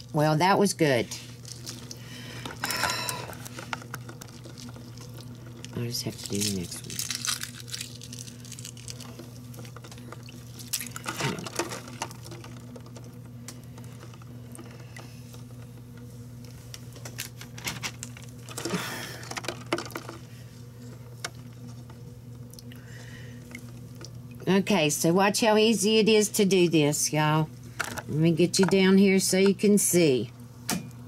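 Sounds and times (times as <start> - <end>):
steady low hum: 0.0 - 31.0
hands sloshing in ice water: 9.9 - 12.7.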